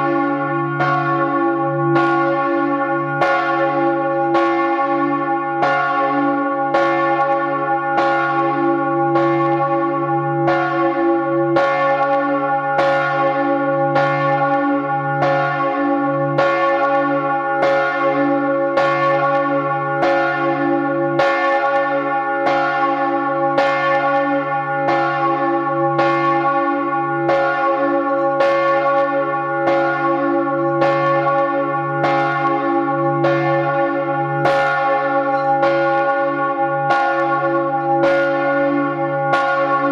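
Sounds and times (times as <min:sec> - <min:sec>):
church bell ringing: 0:00.0 - 0:39.9
deep steady bell hum: 0:34.4 - 0:39.8.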